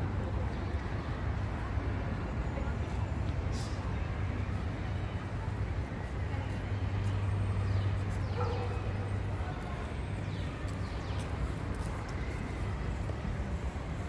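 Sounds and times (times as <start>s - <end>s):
traffic rumble: 0.0s - 14.0s.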